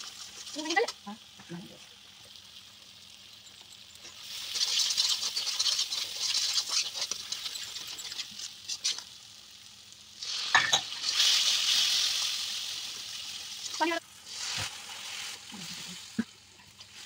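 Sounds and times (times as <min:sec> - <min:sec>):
food sizzling in oil: 0:00.0 - 0:17.0
steel spoon scraping pan: 0:04.0 - 0:09.0.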